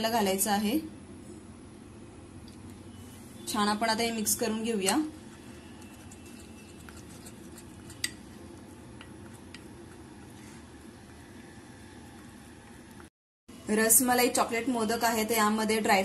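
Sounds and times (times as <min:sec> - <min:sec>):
spoon scraping glass bowl: 0:04.3 - 0:11.2.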